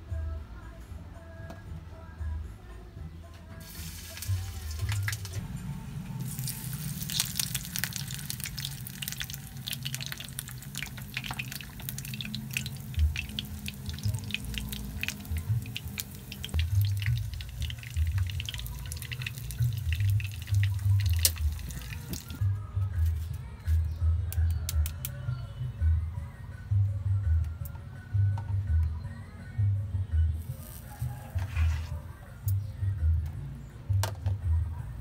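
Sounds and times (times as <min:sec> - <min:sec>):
background music: 0:00.0 - 0:35.0
oil crackling in frying pan: 0:03.6 - 0:05.4, 0:06.2 - 0:22.4.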